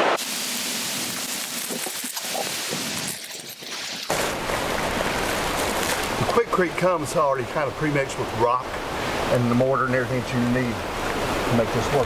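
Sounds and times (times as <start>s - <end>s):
handling and rustling: 5.0s - 6.3s.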